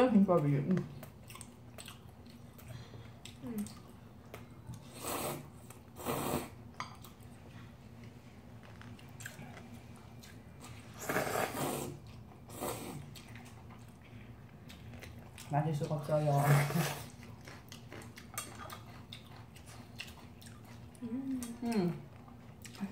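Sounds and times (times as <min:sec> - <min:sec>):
noodles being slurped: 0:10.8 - 0:13.1.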